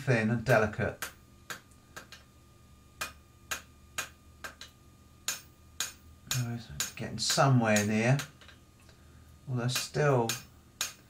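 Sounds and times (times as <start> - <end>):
hammer striking steel on anvil: 5.3 - 8.3.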